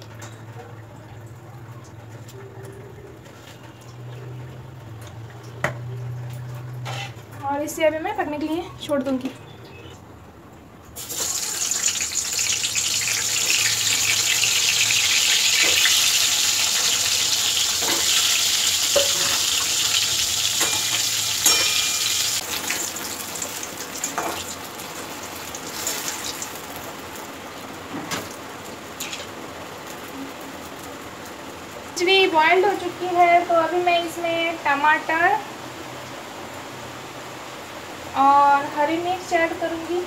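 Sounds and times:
vegetables sizzling in hot oil: 11.0 - 35.4.

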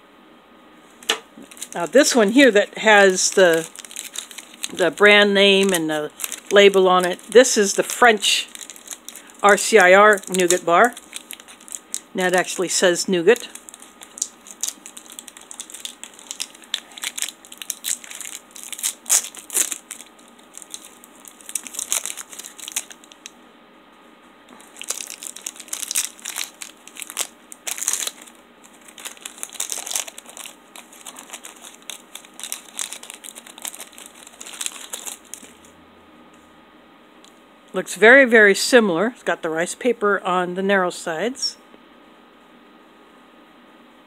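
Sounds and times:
plastic wrapper crinkling: 1.4 - 23.3, 24.5 - 35.7.

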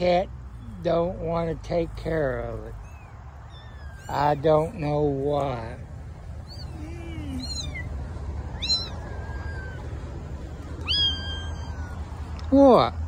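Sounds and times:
kittens mewing: 2.1 - 12.5.

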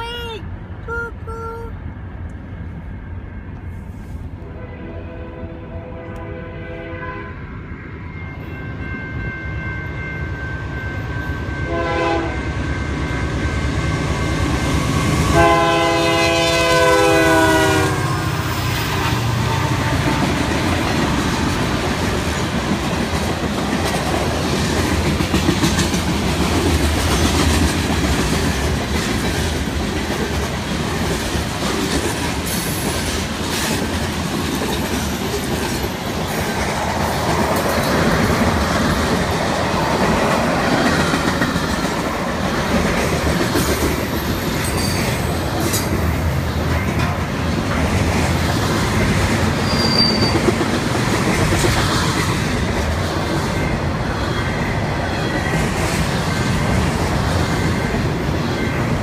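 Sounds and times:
diesel locomotive horn: 3.5 - 12.9, 14.2 - 20.4.

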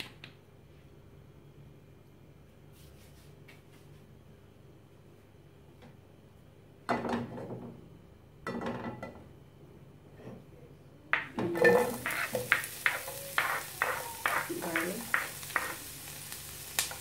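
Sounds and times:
kitchen utensils clattering: 11.4 - 15.2
onion sizzling in hot oil: 11.4 - 17.0.

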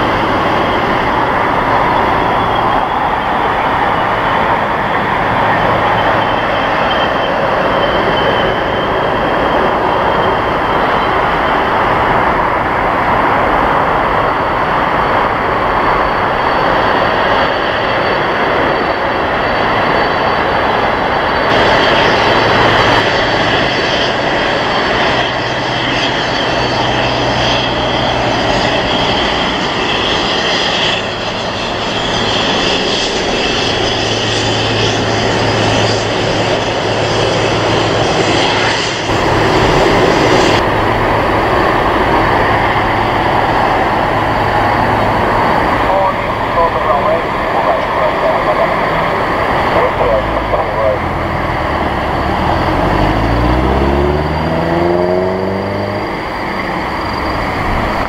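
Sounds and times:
jet engines rushing and whining: 0.0 - 58.0.

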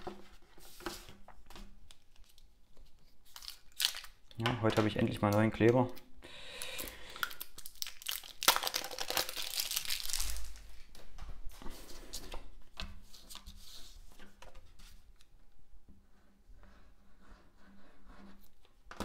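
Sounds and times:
paper rustling and scraping: 0.0 - 3.6.

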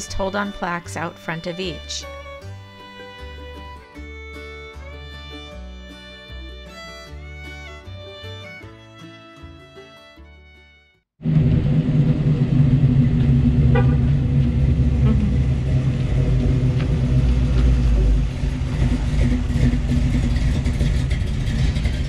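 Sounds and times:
car engine driving past: 11.2 - 22.0.

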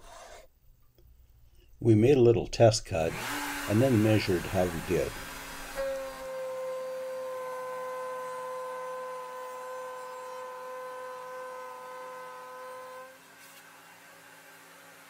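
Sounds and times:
router motor whining: 3.1 - 15.0.

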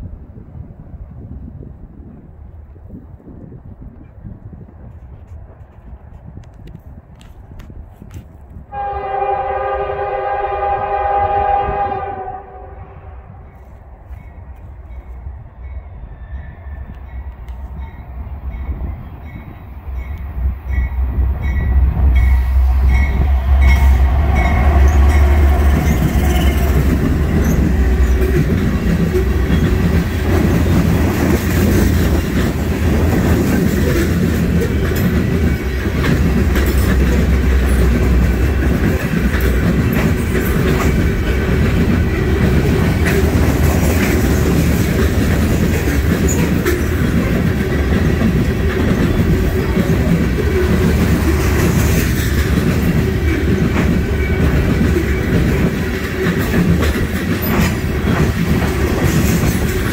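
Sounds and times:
train horn blast: 8.7 - 13.7, 21.7 - 29.7
locomotive engine rumble: 8.7 - 59.9
train wheels clacking on rails: 16.8 - 59.9.

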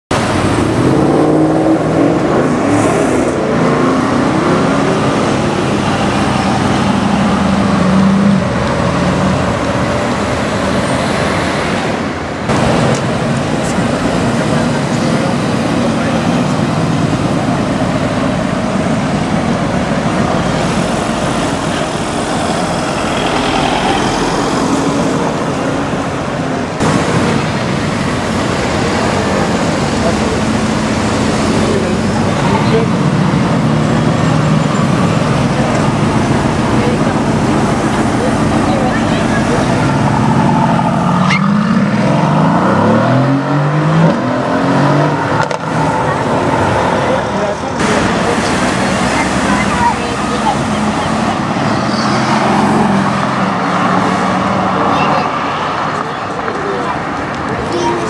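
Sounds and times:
traffic: 0.0 - 58.0
car exhaust revving: 0.1 - 57.7
crowd talking: 11.9 - 58.0.

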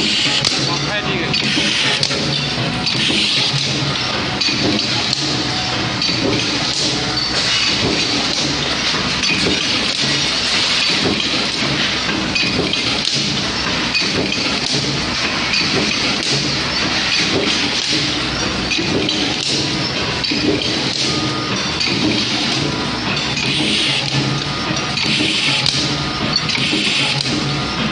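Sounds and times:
clatter of metal impacts: 0.0 - 27.9
steady machine hum: 0.0 - 27.9.

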